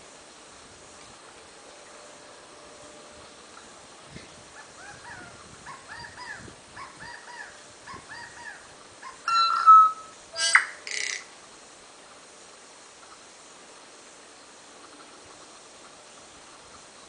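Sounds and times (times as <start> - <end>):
bird calling: 4.6 - 11.3.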